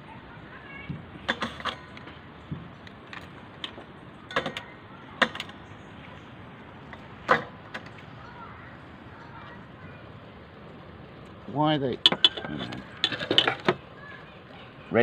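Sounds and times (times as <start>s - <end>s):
metal utensils clinking on pot: 1.3s - 2.0s, 12.0s - 13.8s.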